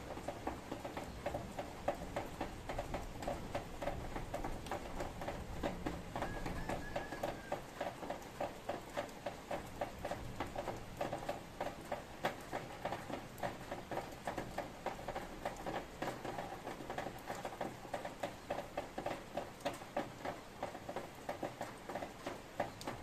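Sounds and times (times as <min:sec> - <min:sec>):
raindrops tapping: 0:00.0 - 0:23.0.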